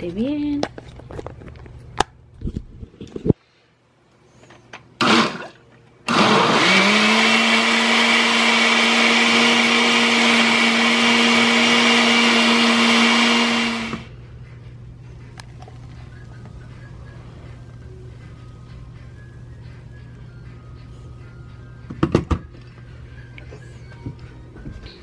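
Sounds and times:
blender motor running: 5.0s - 5.4s, 6.1s - 14.1s.

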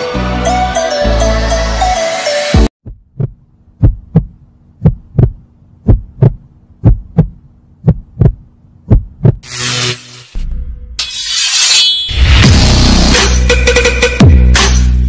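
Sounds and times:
heartbeat thumps: 2.8s - 9.4s.

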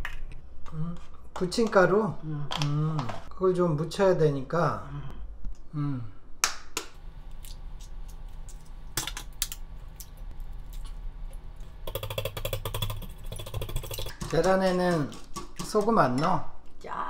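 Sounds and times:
wire whisk beating eggs: 11.6s - 16.4s
eggshells knocking on bowl rim: 11.8s - 16.3s.

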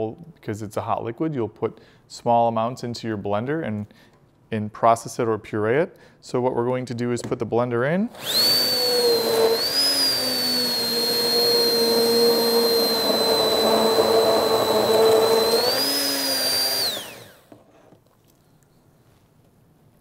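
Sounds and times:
immersion blender motor whining: 8.2s - 17.6s.

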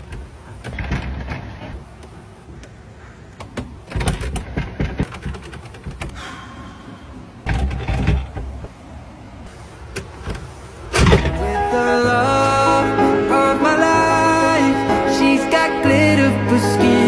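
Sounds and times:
wooden door rattling and knocking: 3.6s - 6.1s.

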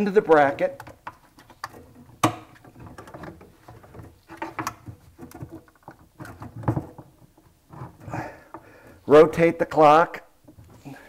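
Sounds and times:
pump clicking and knocking: 0.4s - 9.0s.

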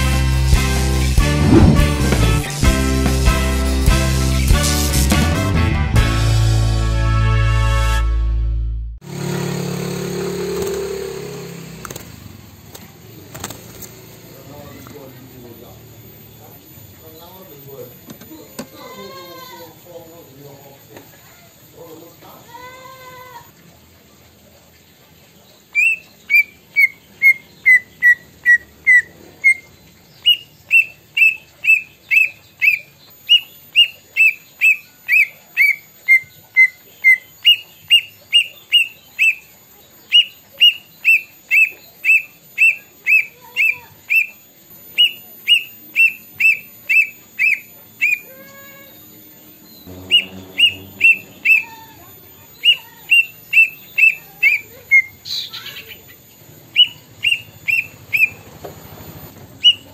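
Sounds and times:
brief lower sound: 1.2s - 2.4s, 49.8s - 52.0s
bird whistling: 25.7s - 58.6s, 59.3s - 59.9s.

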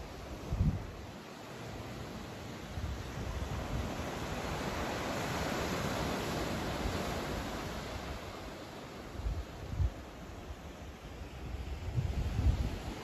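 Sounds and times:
wind buffeting microphone: 0.0s - 1.0s, 9.1s - 13.0s
ocean surf washing onto beach: 0.0s - 13.0s.

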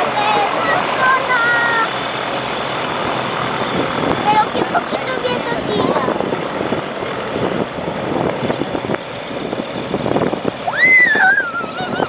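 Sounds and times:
gyroplane engine and propeller: 0.0s - 12.0s
high whistling tone: 10.6s - 11.8s.

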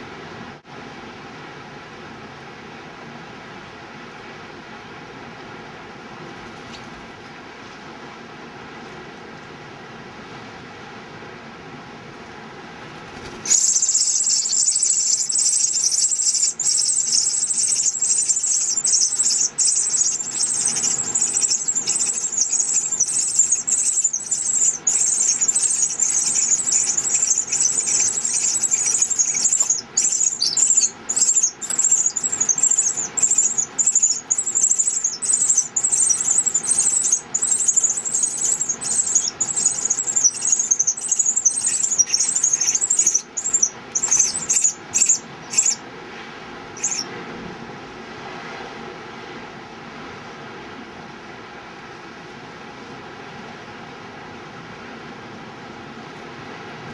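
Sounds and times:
nestlings squealing for food: 13.4s - 45.8s, 46.8s - 47.1s.

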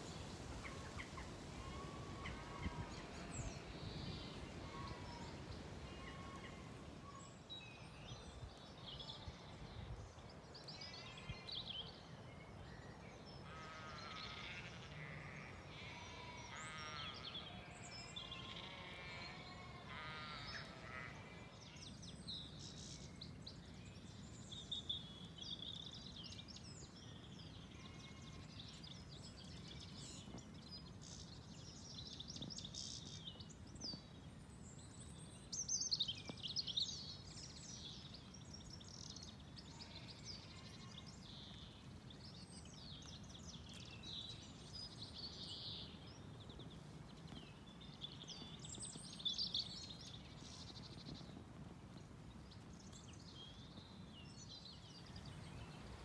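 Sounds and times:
faint low background noise: 0.0s - 56.0s
birds singing: 13.3s - 56.0s.

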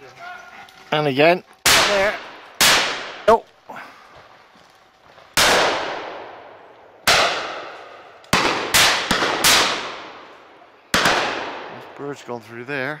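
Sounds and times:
shotgun shots echoing: 1.6s - 3.4s, 5.4s - 12.0s.

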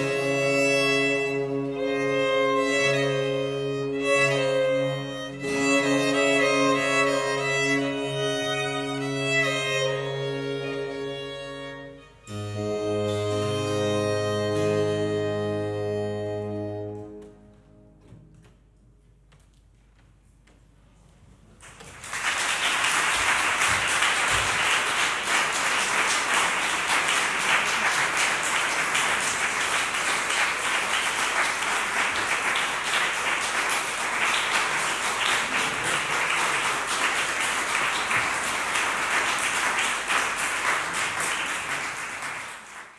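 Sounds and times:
audience applauding: 21.6s - 42.9s.

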